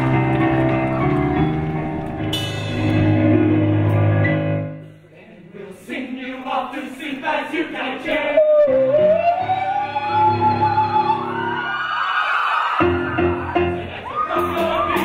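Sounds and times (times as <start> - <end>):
male choir singing: 5.1 - 9.0, 13.7 - 15.0.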